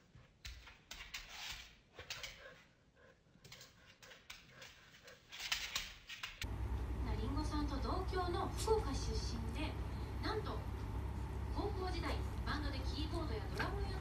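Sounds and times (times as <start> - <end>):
steady low hum: 6.4 - 14.0.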